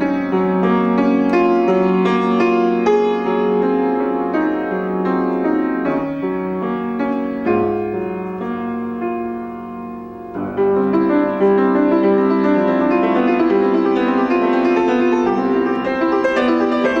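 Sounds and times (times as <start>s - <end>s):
solo piano classical piece: 0.0s - 17.0s.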